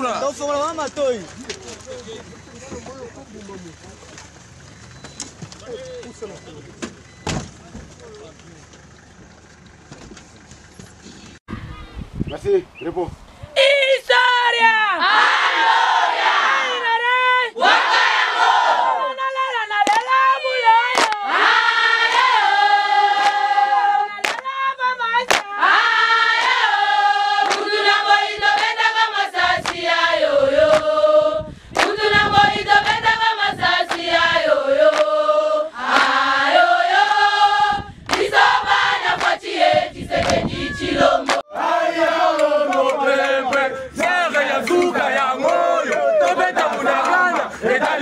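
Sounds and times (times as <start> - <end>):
group singing in unison: 15.0 - 48.0.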